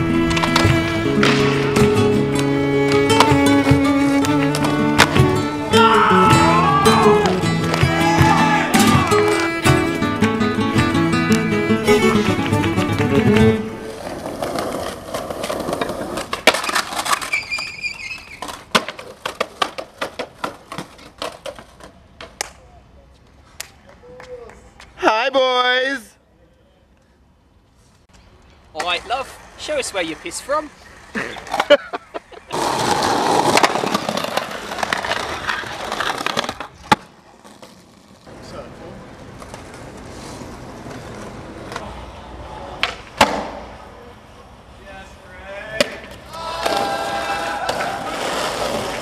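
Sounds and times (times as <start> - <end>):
skateboard sliding on stone ledge: 0.0 - 10.4, 11.0 - 22.4, 30.4 - 43.8, 46.1 - 49.0
skateboard wheels rolling on stone: 0.0 - 22.6, 28.7 - 44.0, 45.7 - 49.0
skateboard clack: 0.2 - 22.6, 28.8 - 43.9, 45.7 - 49.0.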